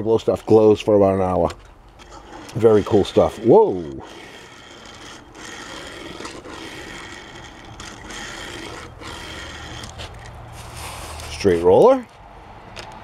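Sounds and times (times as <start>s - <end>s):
toy car wheels rolling: 1.4s - 11.4s.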